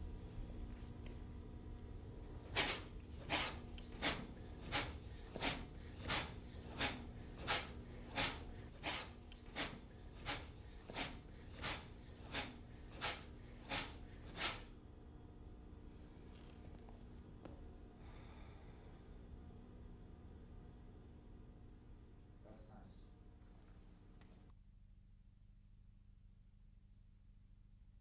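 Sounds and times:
sharp forceful exhalations: 2.4s - 14.7s.

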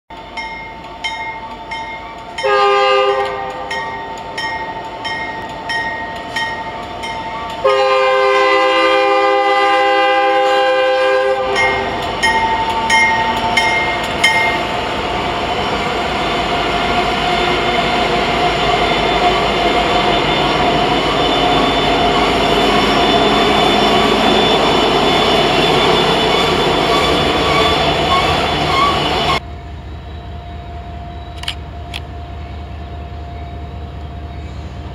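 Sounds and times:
train wheels clicking on rails: 0.1s - 8.0s, 9.8s - 29.4s
freight train rumbling past: 0.1s - 34.9s
locomotive air horn blasts: 2.4s - 3.8s, 7.6s - 12.0s.

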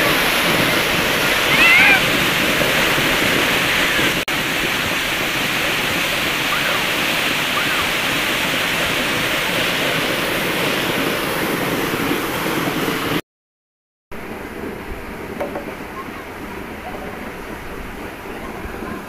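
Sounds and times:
water gushing down a channel: 0.0s - 13.2s, 14.2s - 19.0s
faint children shouting: 0.6s - 2.1s, 6.4s - 8.1s.

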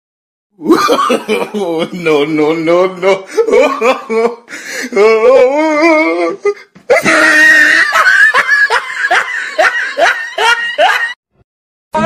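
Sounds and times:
people laughing: 0.6s - 2.2s, 6.9s - 11.2s.

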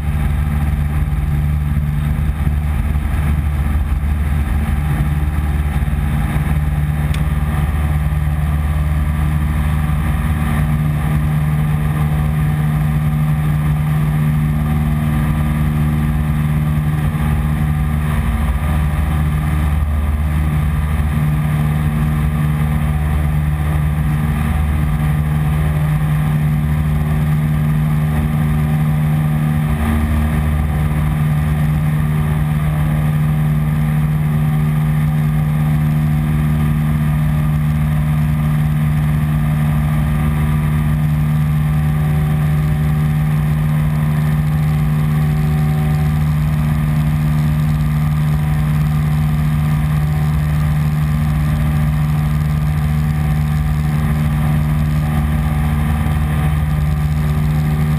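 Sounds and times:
light aircraft engine and propeller: 0.0s - 57.9s.

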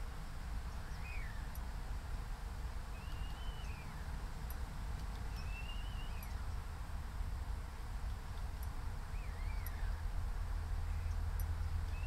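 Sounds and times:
starling whistling: 0.9s - 1.5s, 2.9s - 4.1s, 5.3s - 6.4s, 9.1s - 10.0s.

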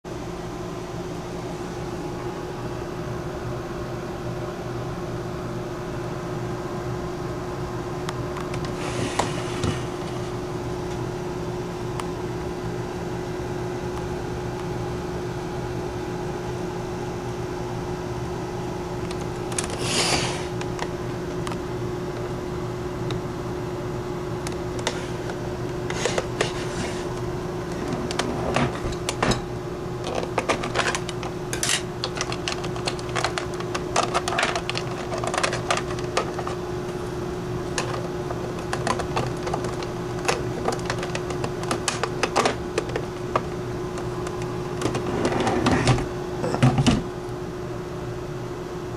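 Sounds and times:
electrical hum with held tone: 0.1s - 48.9s
plastic case handling clicks: 30.0s - 36.6s, 37.7s - 45.0s.

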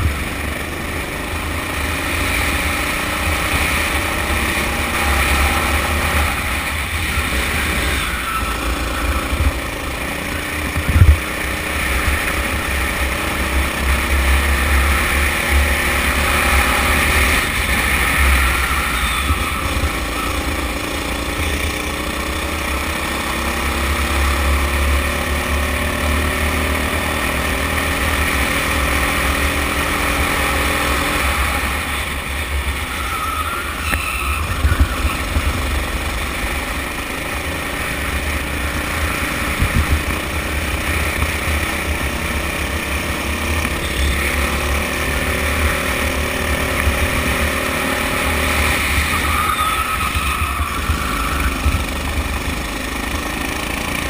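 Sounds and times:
go-kart engine revving: 0.0s - 54.0s
wind rumble on microphone: 10.7s - 11.2s, 39.4s - 40.1s.

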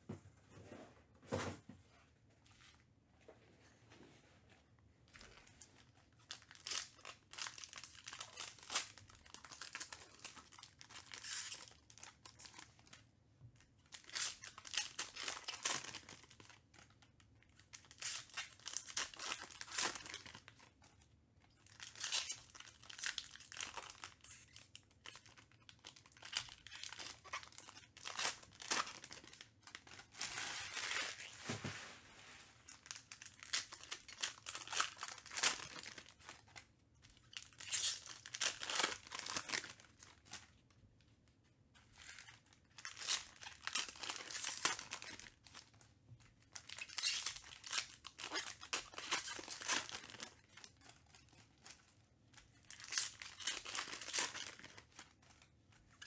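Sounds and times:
foil wrappers tearing and crinkling: 21.8s - 31.4s, 32.7s - 36.4s, 37.3s - 40.4s, 42.0s - 45.6s, 46.5s - 51.8s, 52.6s - 55.4s.

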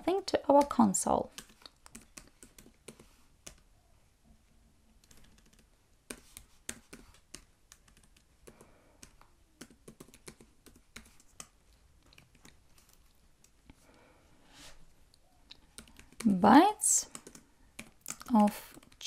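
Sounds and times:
computer keyboard typing: 1.3s - 3.7s, 5.0s - 13.6s, 15.5s - 16.4s, 17.0s - 19.0s.

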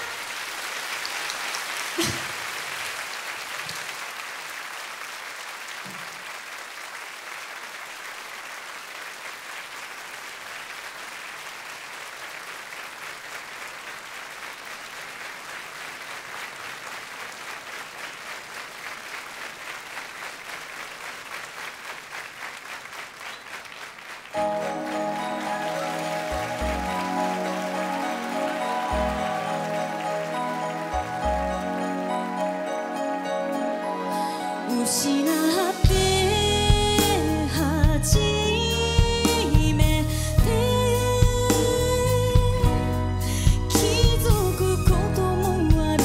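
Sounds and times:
audience applauding: 0.0s - 35.9s.

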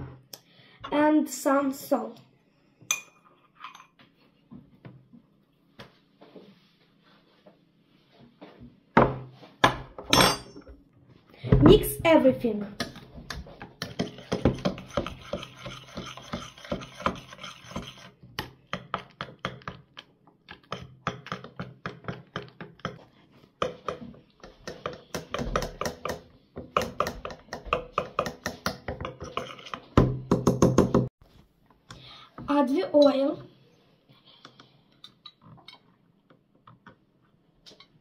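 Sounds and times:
utensil beating batter in metal pot: 12.8s - 31.1s.

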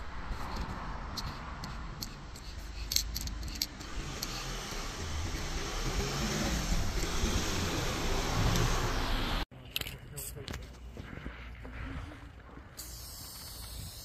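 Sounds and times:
car passing: 0.0s - 9.4s.

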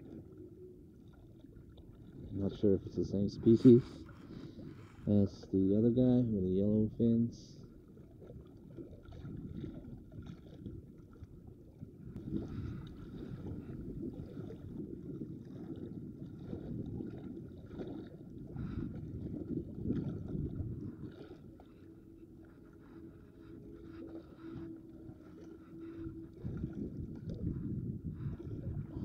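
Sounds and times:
waves sloshing against rocks: 1.3s - 29.0s
wind buffeting microphone: 8.8s - 11.0s, 11.8s - 29.0s.

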